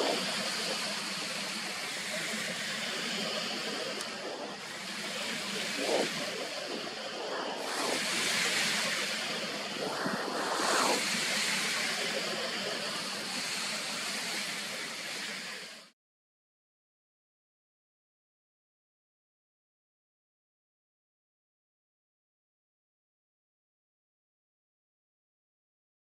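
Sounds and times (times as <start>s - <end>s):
lake waves washing in: 0.0s - 15.9s.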